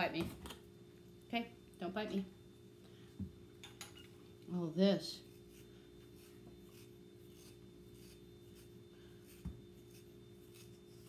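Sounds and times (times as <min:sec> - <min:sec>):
steady low hum: 0:00.0 - 0:11.0
soft scratching of hair pulling: 0:05.2 - 0:11.0.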